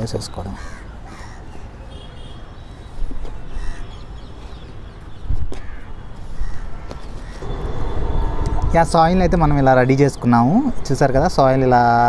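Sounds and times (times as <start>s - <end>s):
crows cawing: 0.5s - 2.0s, 3.5s - 4.0s, 5.5s - 7.7s
low rumble: 7.4s - 12.0s.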